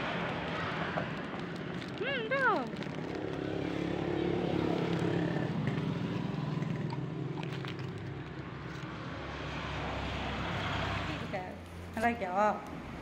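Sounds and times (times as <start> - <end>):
dog chewing biscuit: 0.1 - 9.0.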